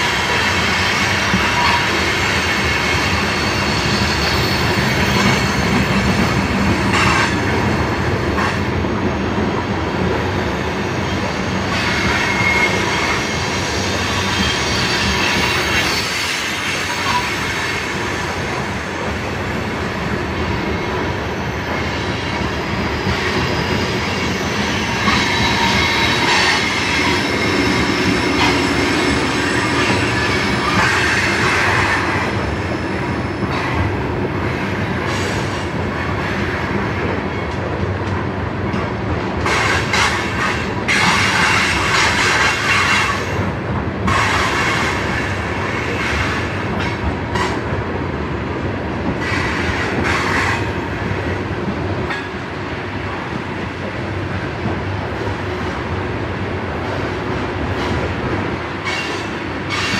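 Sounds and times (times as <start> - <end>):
train wheels rumbling on rail: 0.0 - 59.9
wheel squeal: 2.9 - 6.4.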